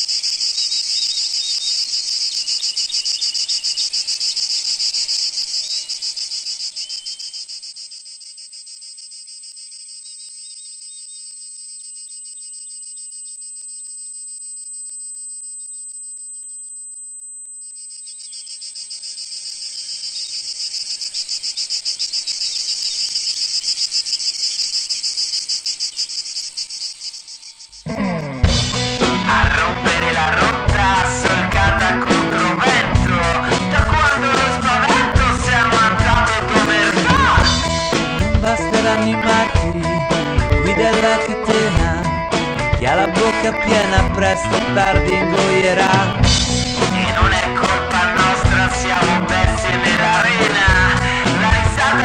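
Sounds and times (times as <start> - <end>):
insects chirring: 0.0 - 29.0.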